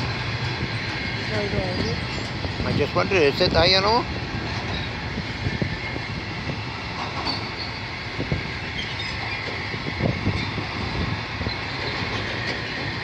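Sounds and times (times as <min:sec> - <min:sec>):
train wheels rumbling on rails: 0:00.0 - 0:13.0.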